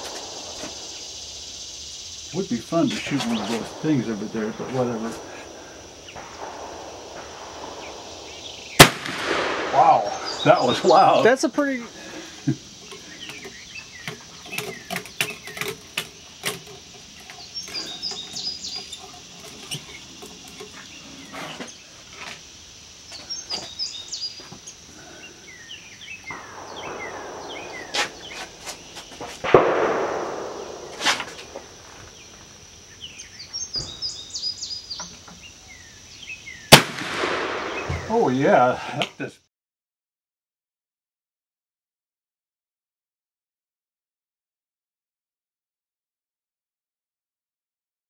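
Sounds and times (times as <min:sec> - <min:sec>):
steady high-pitched whine: 0:00.0 - 0:38.7
birds chirping: 0:00.0 - 0:39.3
clicks and knocks of handling: 0:12.8 - 0:20.8
ramrod in cannon barrel: 0:12.8 - 0:21.7
brief rushing noises: 0:26.8 - 0:31.7.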